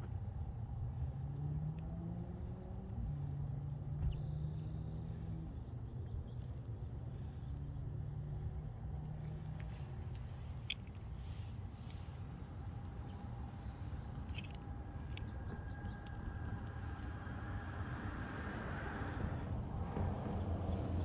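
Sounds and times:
distant engine hum: 0.0s - 21.0s.

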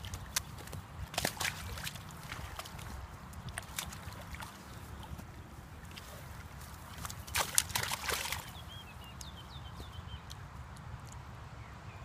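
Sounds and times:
fish splashing in water: 0.0s - 8.8s
bird chirping: 8.2s - 10.5s.

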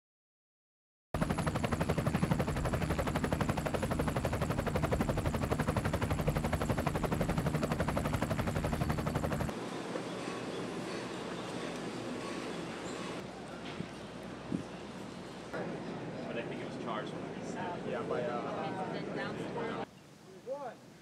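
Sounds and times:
helicopter rotor chopping: 1.2s - 9.6s
outdoor background noise: 1.2s - 21.0s.

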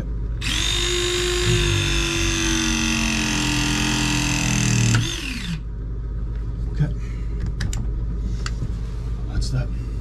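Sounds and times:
press tool motor whining: 0.4s - 5.6s.

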